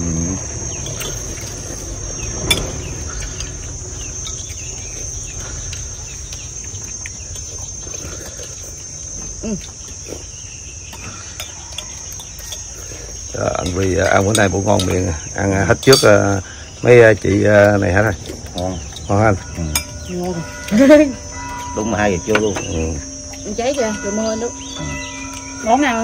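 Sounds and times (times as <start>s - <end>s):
insects droning: 0.0s - 26.0s
spoons clinking on porcelain bowls: 13.4s - 16.4s, 18.6s - 26.0s.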